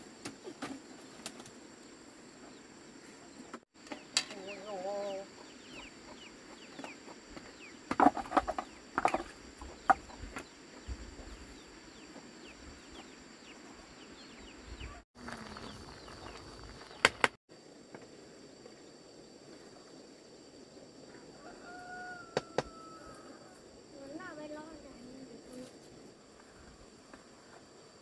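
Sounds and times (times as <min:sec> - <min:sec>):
chickens clucking: 0:03.9 - 0:07.7.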